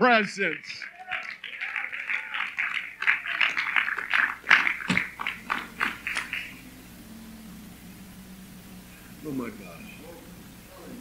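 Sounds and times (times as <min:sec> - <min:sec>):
people applauding: 0:00.0 - 0:06.7.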